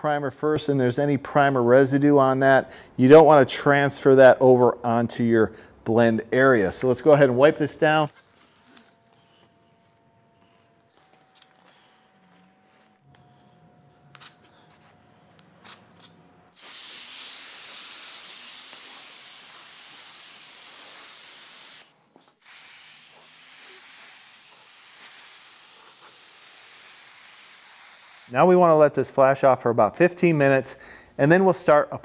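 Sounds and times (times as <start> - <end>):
paint spray gun hissing: 16.5 - 28.4.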